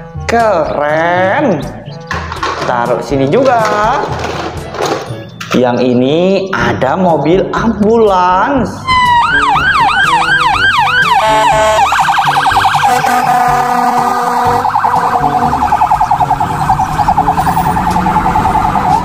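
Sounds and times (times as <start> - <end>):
ambulance siren: 8.8 - 19.0.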